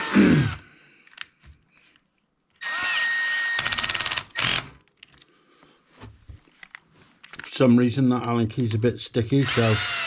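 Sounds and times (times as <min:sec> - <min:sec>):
cordless drill whirring: 0:02.6 - 0:04.8, 0:09.4 - 0:10.0.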